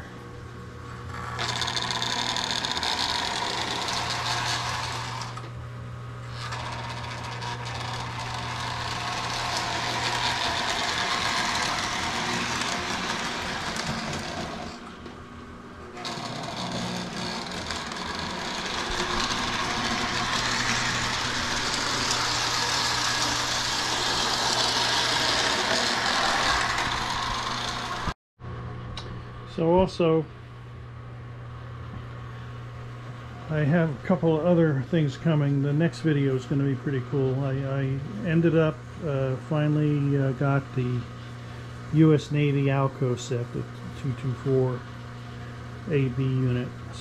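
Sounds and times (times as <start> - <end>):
small electric motor hum: 0.9 - 5.6, 6.2 - 15.2, 15.9 - 28.2
toy train wheels rattling on track: 1.4 - 5.4, 6.4 - 14.8, 16.0 - 28.1.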